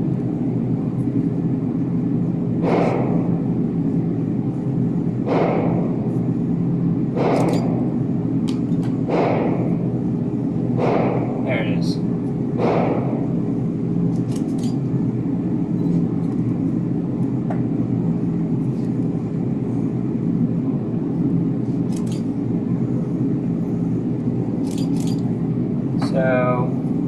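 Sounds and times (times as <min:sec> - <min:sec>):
low machine hum: 0:00.0 - 0:27.0.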